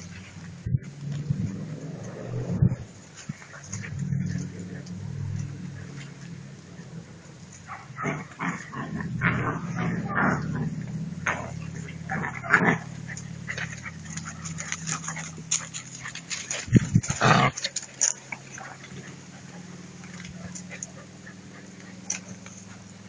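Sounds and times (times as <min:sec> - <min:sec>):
puppies yipping and whimpering: 0:17.6 - 0:23.0.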